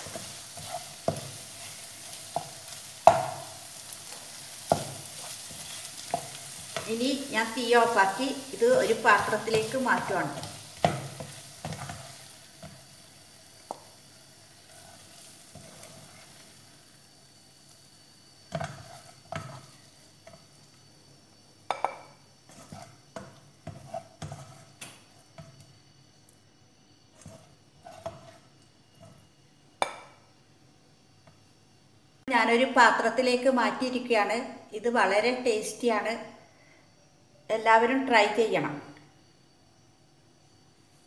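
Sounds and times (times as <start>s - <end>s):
spatula scraping frying pan: 0.0s - 12.9s, 14.5s - 16.6s, 18.4s - 20.6s, 21.8s - 25.6s, 27.1s - 29.3s
faint sizzle: 0.0s - 41.0s.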